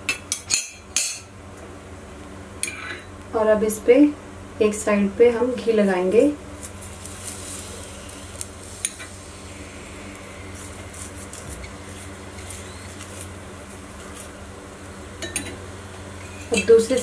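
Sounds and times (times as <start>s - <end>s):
steady low hum: 0.0s - 17.0s
steel spoon scraping on griddle: 6.8s - 13.3s, 16.2s - 17.0s.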